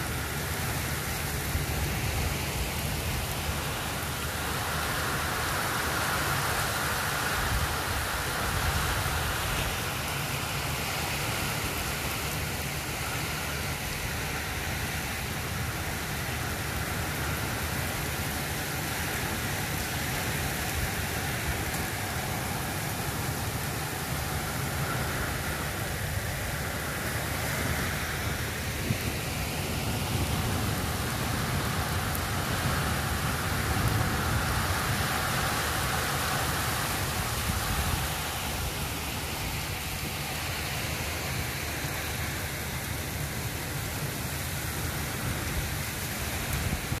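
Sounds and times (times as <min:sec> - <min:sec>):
heavy rain hissing: 0:00.0 - 0:47.0
wind rumbling: 0:20.6 - 0:39.9.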